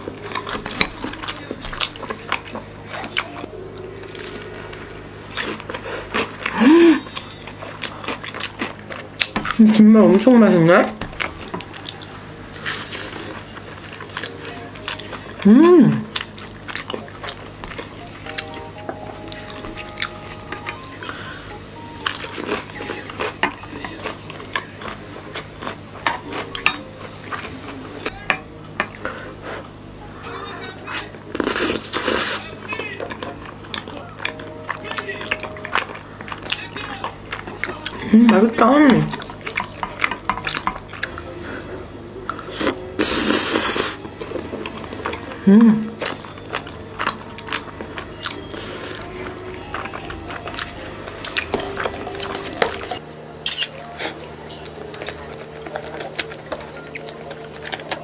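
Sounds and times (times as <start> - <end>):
crunchy chewing: 0.0 - 9.6, 10.9 - 18.5, 19.3 - 28.1, 39.1 - 45.3, 46.0 - 58.0
person humming: 6.5 - 7.2, 14.3 - 16.2, 45.3 - 46.0.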